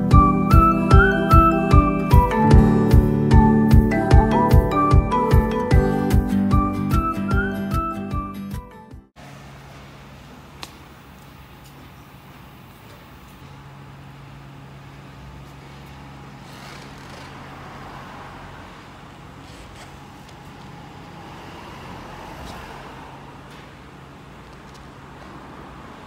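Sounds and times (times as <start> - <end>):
low mechanical hum: 9.2 - 26.0.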